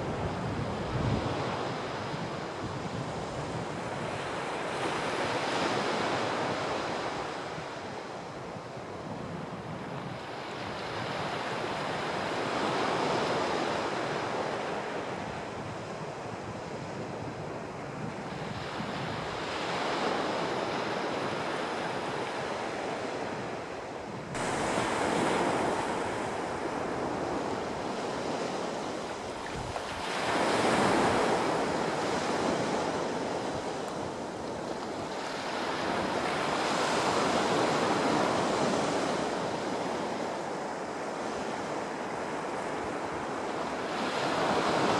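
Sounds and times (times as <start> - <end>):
small sea waves breaking on shore: 9.8 - 44.9.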